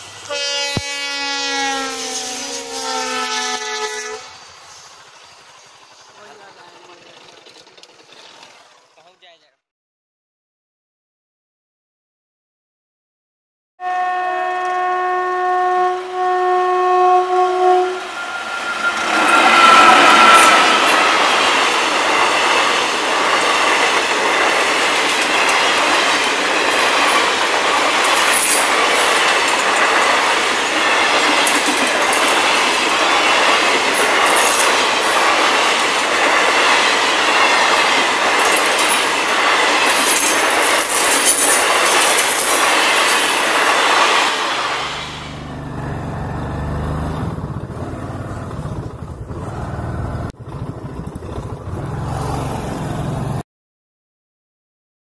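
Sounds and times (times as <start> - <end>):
rail clatter and squeal: 0.0 - 9.1, 17.0 - 53.2
train wheels on rails: 0.0 - 9.2, 17.1 - 53.4
low engine hum: 45.2 - 53.4.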